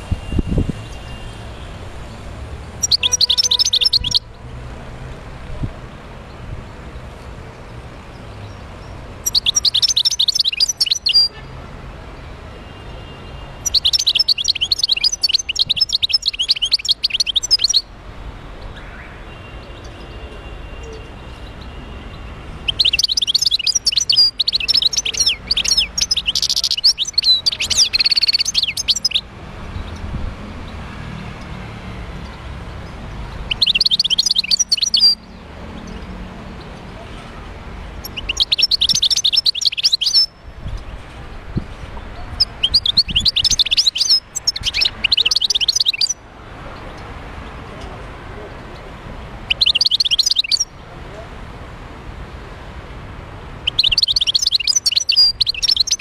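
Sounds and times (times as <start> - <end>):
goldfinch twittering song: 2.8 - 4.3, 8.2 - 11.4, 13.6 - 17.9, 22.6 - 30.1, 32.9 - 36.1, 38.0 - 40.9, 42.3 - 46.2, 49.5 - 50.7, 53.6 - 56.0.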